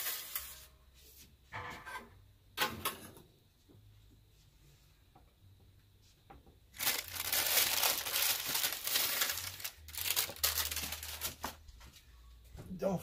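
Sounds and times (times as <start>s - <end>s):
baking paper crinkling: 0.0s - 0.7s, 6.7s - 11.7s.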